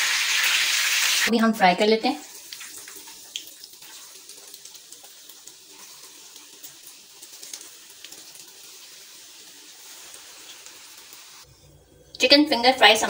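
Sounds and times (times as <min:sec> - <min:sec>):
chicken frying in oil: 0:00.0 - 0:11.5.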